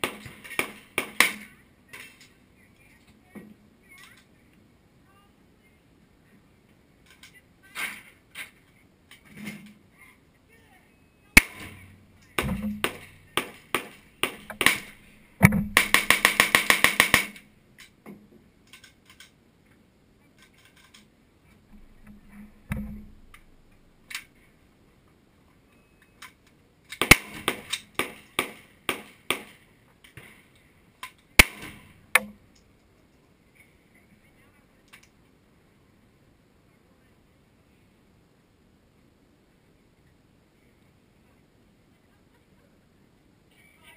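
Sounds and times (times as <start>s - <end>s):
pistol shots: 11.4s - 17.4s, 27.0s - 29.6s, 31.4s - 32.2s.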